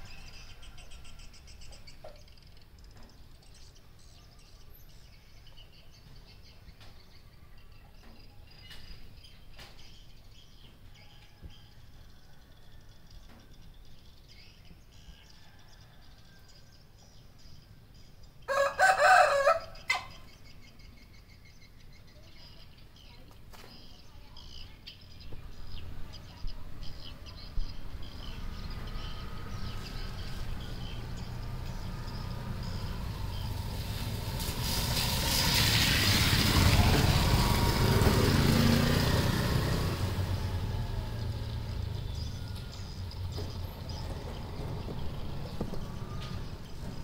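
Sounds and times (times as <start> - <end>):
rooster crowing: 18.5 - 20.1.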